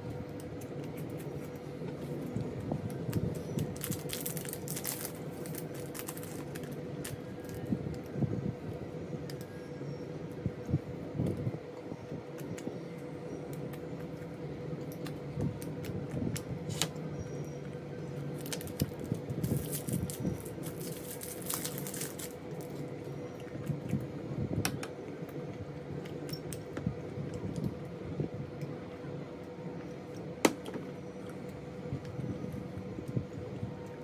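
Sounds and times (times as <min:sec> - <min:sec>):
faint steady hum: 0:00.0 - 0:34.0
plastic wrapper crinkling: 0:03.1 - 0:07.7, 0:18.4 - 0:22.8.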